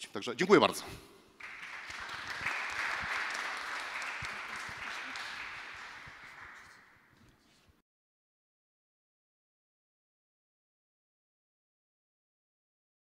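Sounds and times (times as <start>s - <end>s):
audience applauding: 1.4s - 7.1s.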